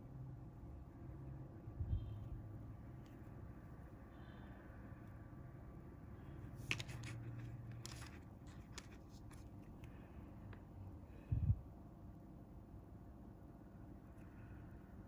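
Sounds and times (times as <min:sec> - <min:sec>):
low steady hum: 0:00.0 - 0:15.0
small clicks and rustles: 0:06.6 - 0:10.6.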